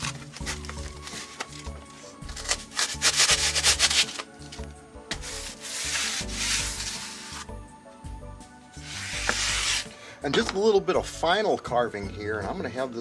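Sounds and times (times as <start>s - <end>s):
hand saw cutting foam: 2.3s - 4.3s, 5.2s - 7.5s, 8.8s - 9.9s.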